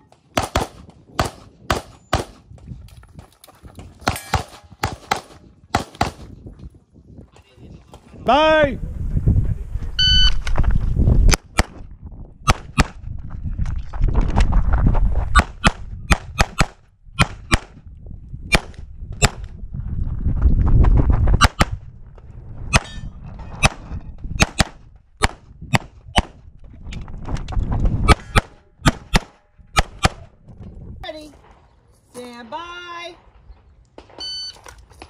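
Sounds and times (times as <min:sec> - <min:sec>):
pistol shots: 0:00.4 - 0:02.4.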